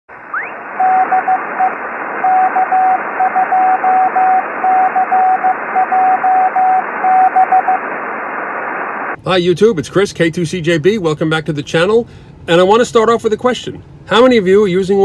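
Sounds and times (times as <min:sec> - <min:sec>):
radio static hiss: 0:00.1 - 0:09.2
morse code tone: 0:00.4 - 0:07.8.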